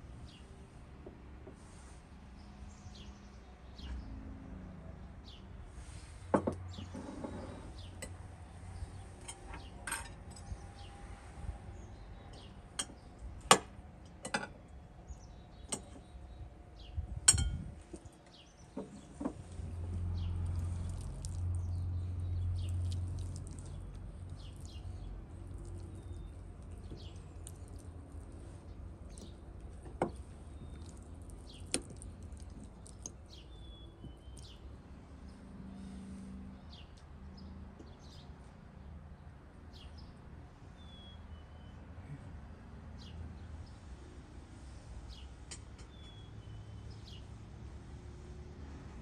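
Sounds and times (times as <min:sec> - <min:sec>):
birds chirping: 0:14.3 - 0:27.8, 0:28.4 - 0:34.7
cutlery clinking on plates: 0:17.3 - 0:17.6.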